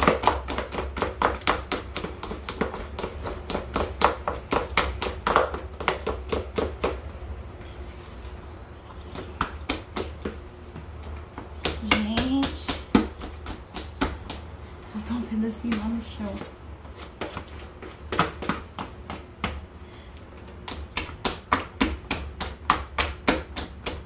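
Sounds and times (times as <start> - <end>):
dough slapping in a bowl: 0.0 - 7.1, 20.6 - 24.0.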